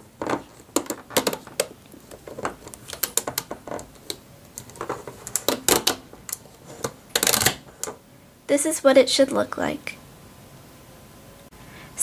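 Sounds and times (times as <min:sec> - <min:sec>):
hook and bands clicking on plastic: 0:00.2 - 0:08.0.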